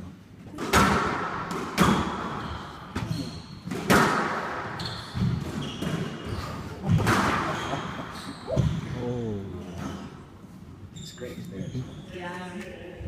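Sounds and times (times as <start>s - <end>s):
squash ball hits: 0.5s - 8.9s
shoes squeaking on wooden floor: 4.8s - 9.0s, 10.9s - 12.2s.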